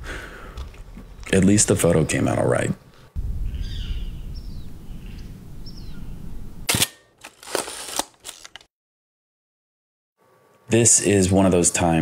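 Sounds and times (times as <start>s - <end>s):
camera shutter clack: 6.7s - 8.4s.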